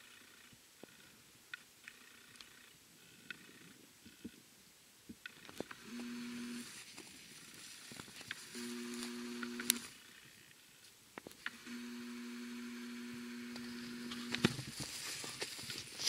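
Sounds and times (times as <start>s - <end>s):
camcorder zoom motor whining: 5.6s - 6.7s, 8.4s - 10.1s, 11.4s - 14.6s.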